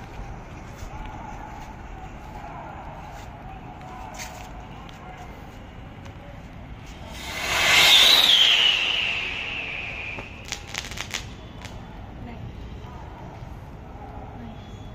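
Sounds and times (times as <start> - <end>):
whistling rocket launching: 7.0 - 11.4
falling whistle: 7.1 - 10.8.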